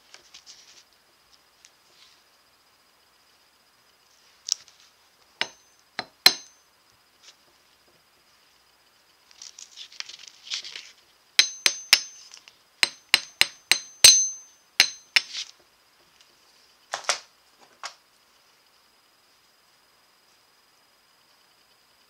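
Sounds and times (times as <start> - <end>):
hammer striking steel anvil: 5.4 - 6.6, 11.4 - 15.4.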